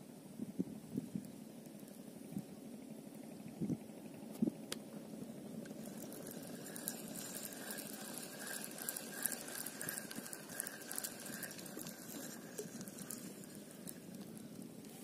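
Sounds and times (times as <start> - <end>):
reel handle whirring: 4.2 - 15.0
fishing reel clicking: 5.6 - 15.0.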